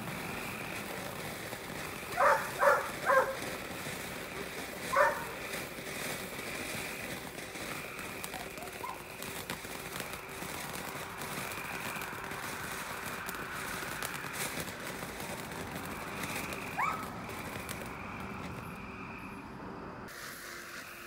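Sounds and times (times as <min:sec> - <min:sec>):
faint firework crackles: 0:00.0 - 0:21.0
firework fountain hissing: 0:00.0 - 0:21.0.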